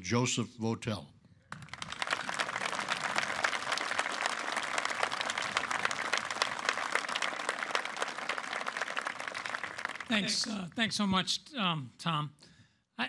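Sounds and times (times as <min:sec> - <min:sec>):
audience applauding: 0:01.5 - 0:10.6.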